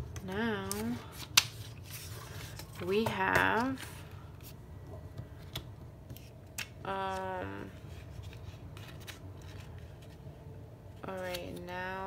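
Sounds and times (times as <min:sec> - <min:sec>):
paper and plastic rustling: 0:00.5 - 0:04.5.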